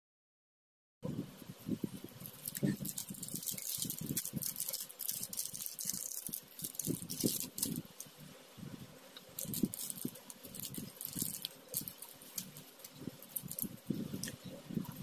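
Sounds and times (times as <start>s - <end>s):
plastic packaging crinkling: 2.1s - 8.1s, 9.3s - 15.0s.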